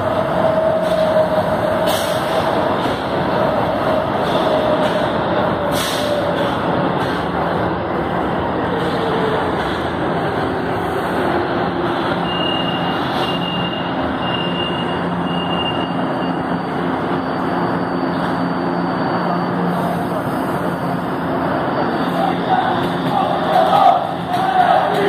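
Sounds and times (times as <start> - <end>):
train wheels on rails: 0.0 - 25.0.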